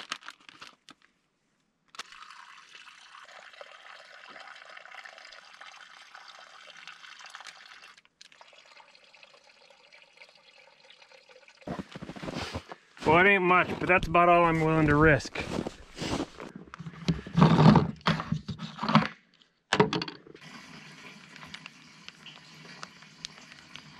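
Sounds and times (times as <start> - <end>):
plastic crinkling: 0.0 - 1.1.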